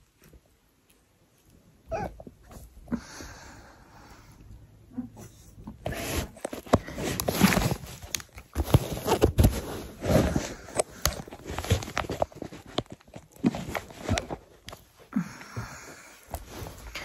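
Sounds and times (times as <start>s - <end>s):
soft rustling: 0.0s - 17.0s.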